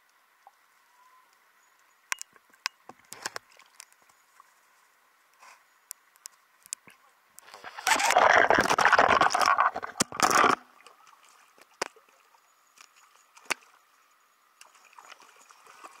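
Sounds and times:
small splashes: 7.4 - 13.8, 14.6 - 16.0
fish thrashing in splashing water: 7.5 - 10.7.

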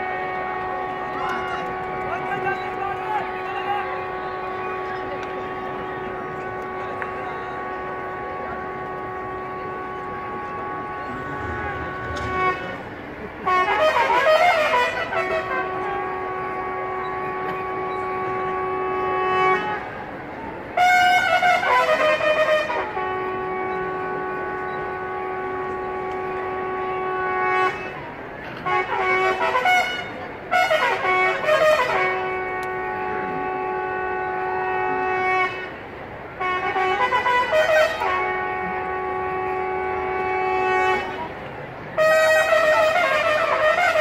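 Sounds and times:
bugle call: 0.0 - 12.9, 36.4 - 41.3, 42.0 - 44.0.

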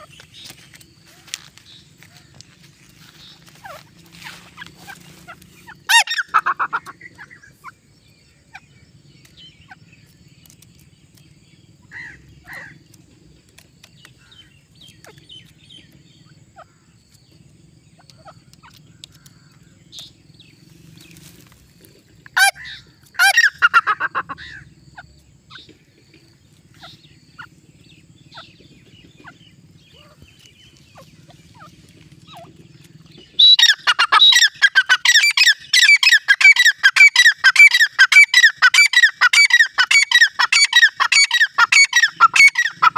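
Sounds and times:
bird calling: 0.0 - 42.9
faint clicks: 18.0 - 20.1.

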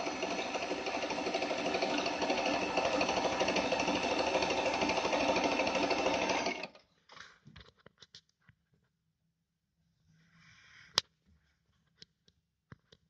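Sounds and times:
sewing machine stitching: 0.0 - 6.8.

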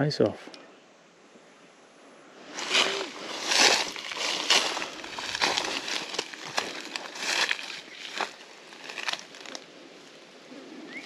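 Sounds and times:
brushing through grass: 2.4 - 10.2
footsteps crunching on dry leaves: 2.4 - 10.2.

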